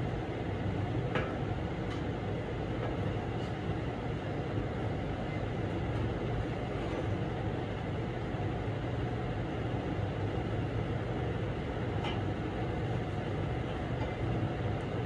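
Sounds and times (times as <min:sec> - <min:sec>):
low machine drone: 0:00.0 - 0:01.3.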